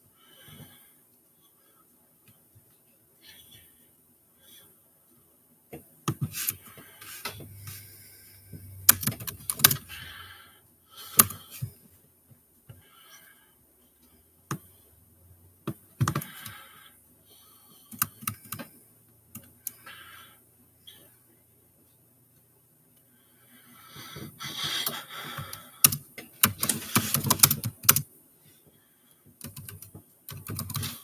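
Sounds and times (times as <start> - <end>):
laptop keyboard typing: 8.8 - 10.1, 15.6 - 16.8, 17.8 - 18.7, 24.6 - 28.1, 29.4 - 31.0.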